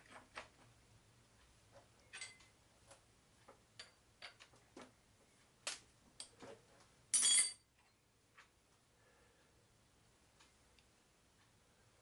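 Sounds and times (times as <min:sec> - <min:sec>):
ringing metallic clink: 0:07.1 - 0:07.6.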